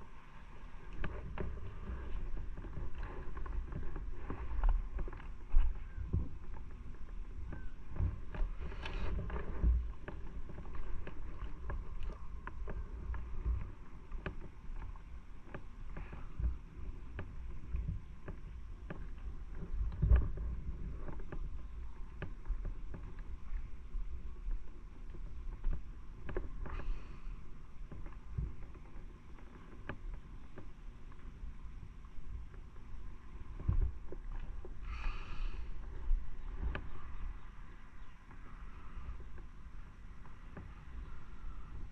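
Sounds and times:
wind and road noise rumble: 0.0s - 41.9s.

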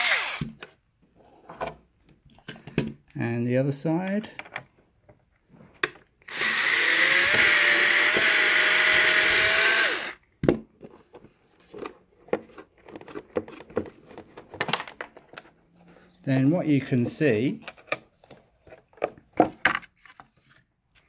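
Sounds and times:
cordless screwdriver running: 0.0s - 0.5s, 6.3s - 10.2s.

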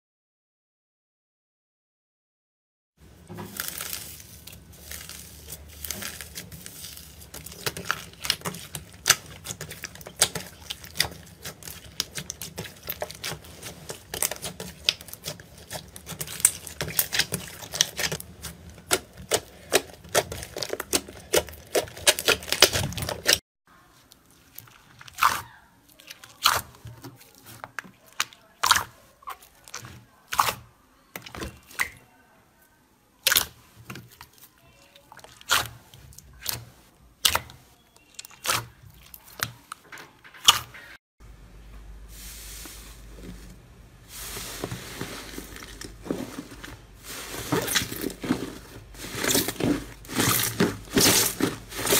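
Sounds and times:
slime squelching: 3.1s - 32.1s, 33.2s - 40.9s, 42.2s - 51.9s
slime crackling and popping: 3.5s - 23.4s, 49.0s - 51.9s.

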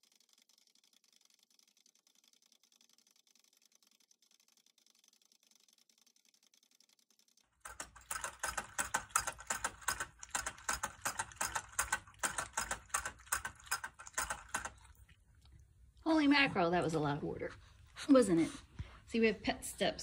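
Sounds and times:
dog licking water bottle nozzle: 7.6s - 15.6s.

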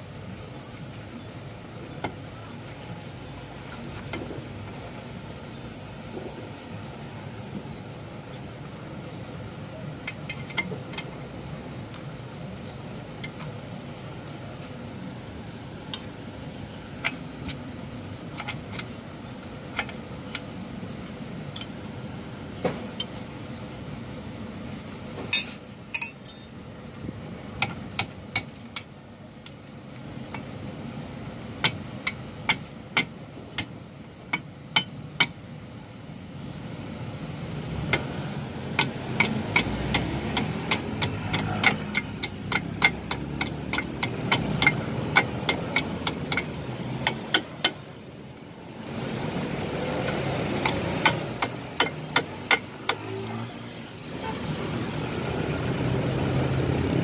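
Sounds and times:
metal tools clicking and clinking: 25.3s - 26.7s.

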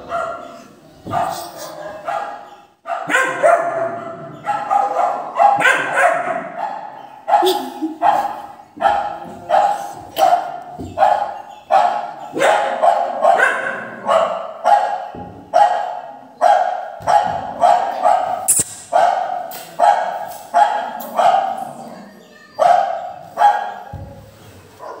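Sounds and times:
recorded dog barks from phone: 0.0s - 21.6s, 22.6s - 24.0s, 24.8s - 25.0s
sharp click: 18.5s - 18.9s.

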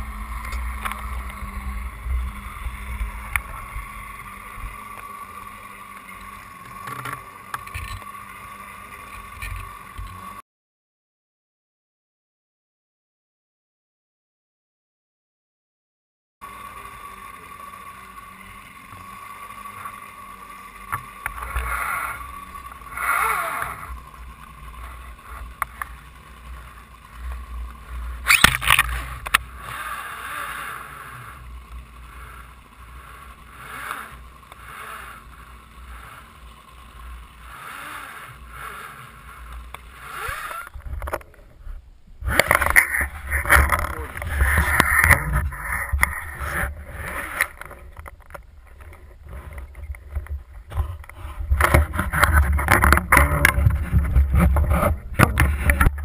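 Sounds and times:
boat noise: 0.0s - 10.4s, 16.4s - 56.0s
faint steady hum: 0.0s - 10.4s, 16.4s - 56.0s
wind on boat deck: 39.4s - 56.0s.

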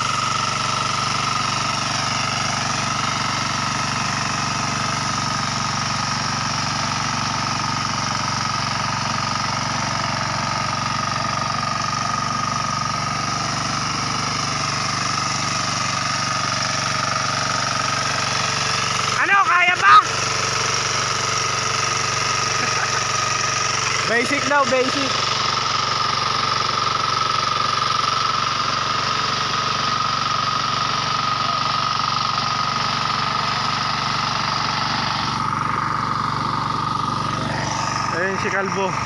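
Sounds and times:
small tractor engine running: 0.0s - 39.0s
wheel churning through mud: 0.0s - 39.0s
constant high whine: 18.0s - 26.4s.

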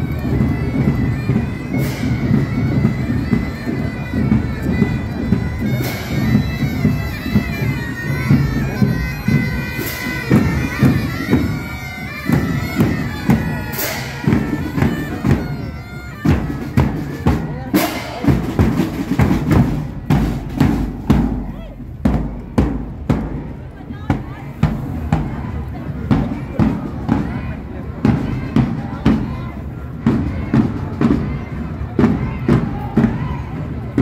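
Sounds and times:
bagpipes playing a tune: 0.0s - 19.8s
drums beating: 0.0s - 34.0s.

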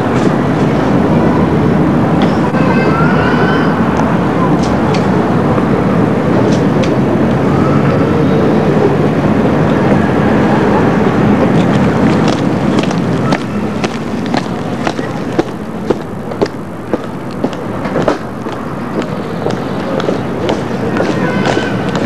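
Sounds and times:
steady rushing noise: 0.0s - 22.0s
boots marching on hard ground: 11.7s - 22.0s.

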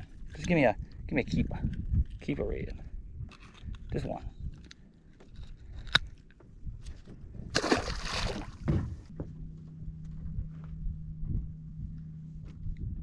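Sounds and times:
steady low hum: 0.0s - 13.0s
fish splashing into water: 7.5s - 8.7s.

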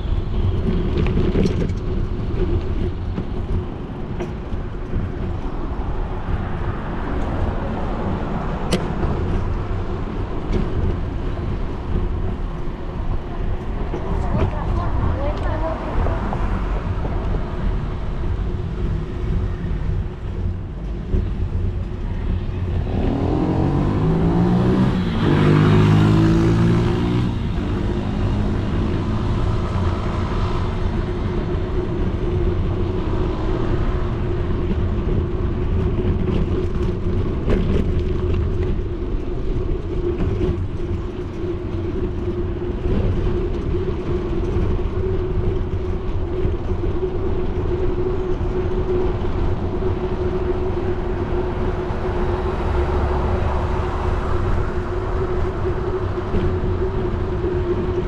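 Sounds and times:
road rumble: 0.0s - 58.0s
wind on microphone: 0.0s - 58.0s
motor vehicle passing: 22.1s - 39.3s, 44.0s - 58.0s.

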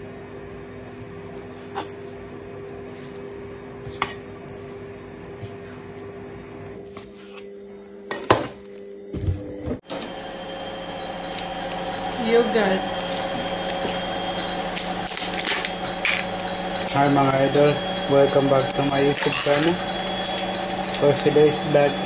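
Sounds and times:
electrical hum: 8.6s - 22.0s
kitchenware clinking: 9.8s - 22.0s.

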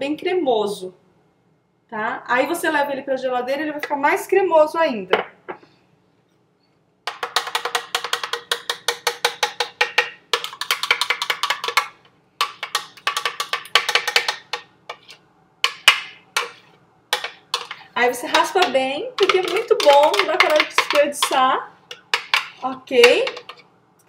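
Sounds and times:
spoon scraping in blender jar: 7.1s - 11.9s, 12.5s - 15.2s, 16.4s - 23.7s.

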